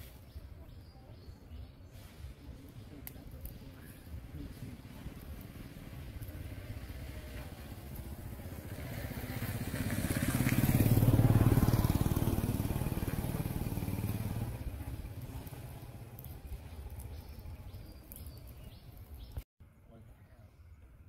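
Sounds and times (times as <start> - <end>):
vehicle engine passing by: 4.4 - 18.2.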